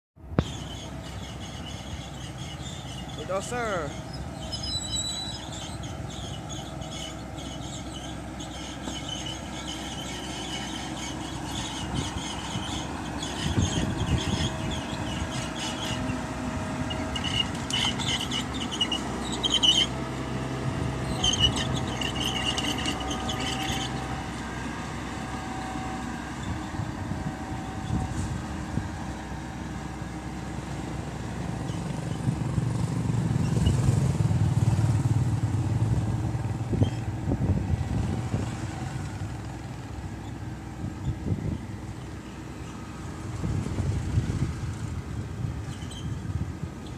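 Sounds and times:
bulldozer diesel engine under load: 0.2s - 46.9s
high squealing: 0.4s - 20.0s, 21.0s - 24.3s.

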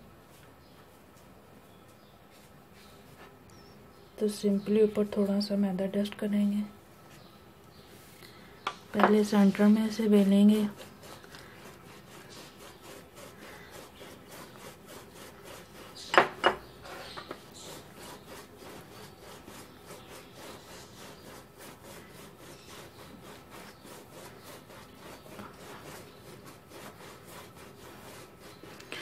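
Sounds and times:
rolling pin rubbing over dough: 8.9s - 29.0s.

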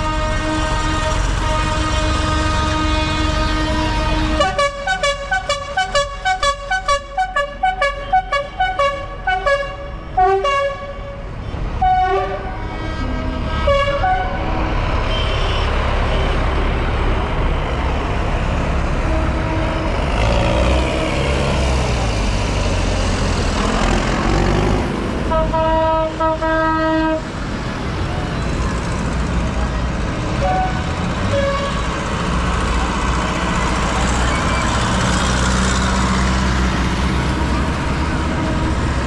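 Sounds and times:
horns tooting: 0.0s - 16.7s, 25.2s - 27.3s
tractor engines rumbling: 0.0s - 39.0s.

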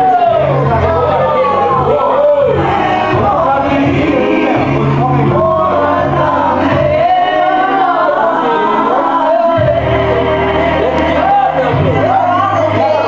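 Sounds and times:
low musical accompaniment: 0.0s - 13.0s
men singing together: 0.0s - 13.0s.

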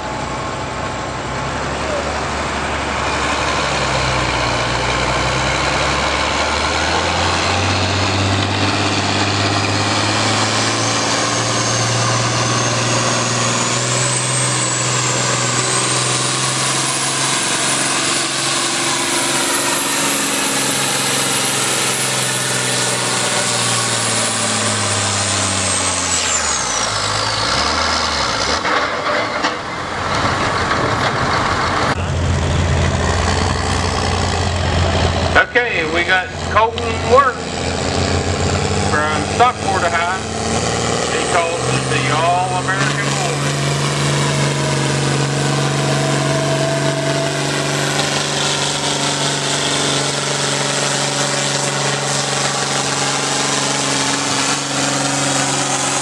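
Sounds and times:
tractor diesel engine under load: 0.0s - 56.0s
high whine: 31.8s - 56.0s.

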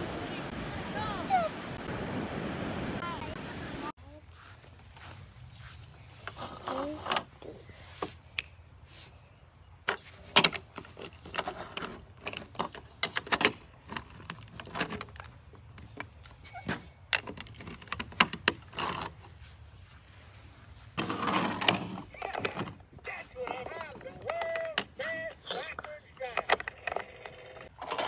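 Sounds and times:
plastic toys clicking: 21.6s - 28.0s.

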